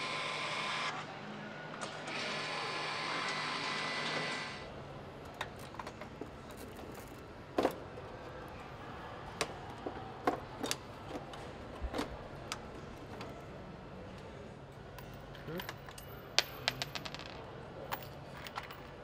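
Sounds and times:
factory background noise: 0.0 - 15.8
clicks and knocks of parts: 5.2 - 7.9, 15.0 - 19.0.

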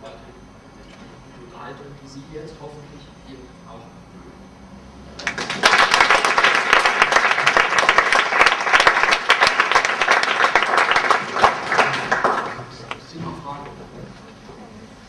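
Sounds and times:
audience applause: 5.2 - 13.0.

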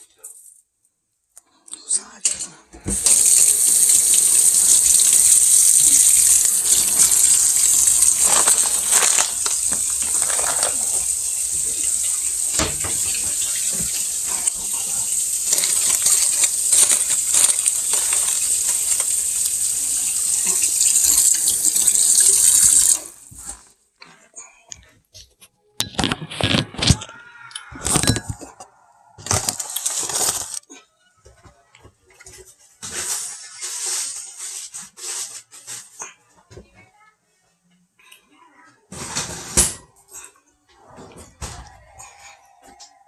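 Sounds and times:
faucet running into steel sink: 2.9 - 23.3.

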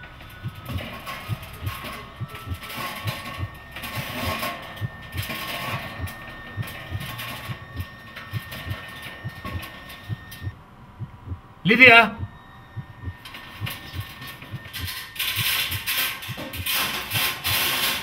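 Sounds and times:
thin high tone: 0.0 - 10.5
heartbeat-like pulse thudding: 0.0 - 16.7.

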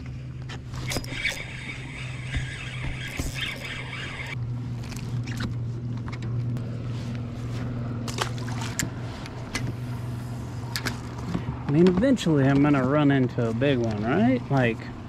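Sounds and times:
kayak pedal drive hum: 0.0 - 15.0
small water splashes: 8.0 - 9.3.

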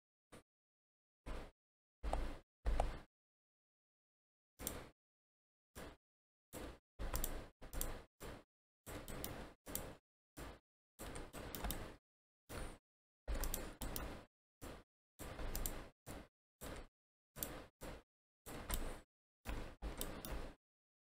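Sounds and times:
mouse and keyboard clicks: 4.6 - 4.9, 6.6 - 8.0, 9.0 - 10.0, 11.0 - 12.7, 13.3 - 15.9, 18.5 - 20.6.

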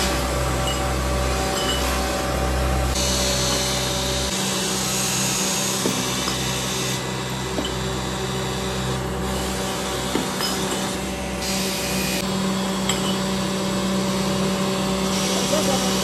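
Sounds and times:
workshop machinery humming: 0.0 - 16.0
metal hubs clinking: 0.5 - 2.2, 5.8 - 8.4, 9.6 - 11.3, 12.0 - 13.5.

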